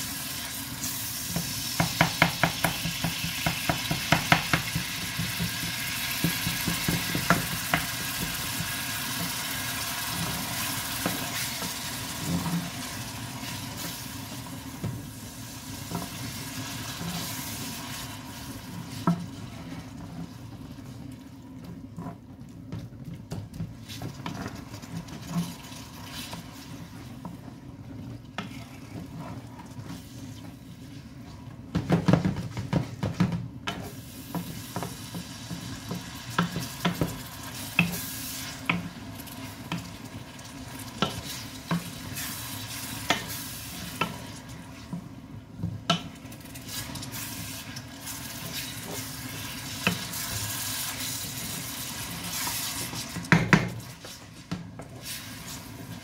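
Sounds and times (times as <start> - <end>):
meat sizzling in frying pan: 0.0 - 20.5, 23.9 - 27.0, 33.7 - 45.1, 45.8 - 56.0
spatula knocking against pan: 1.8 - 5.6
spatula scraping pan: 28.4 - 30.3.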